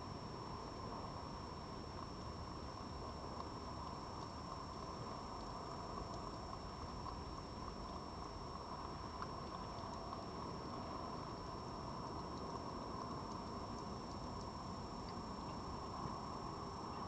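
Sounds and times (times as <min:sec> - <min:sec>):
faint clicks: 0:03.3 - 0:08.0, 0:08.6 - 0:16.3.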